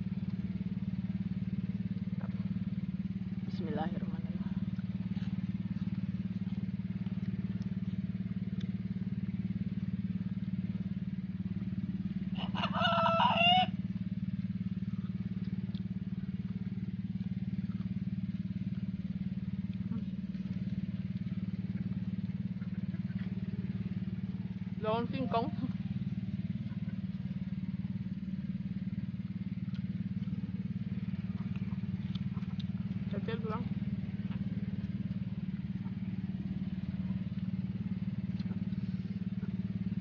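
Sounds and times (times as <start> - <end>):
low engine hum: 0.0 - 40.0
rooster crowing: 12.3 - 13.9.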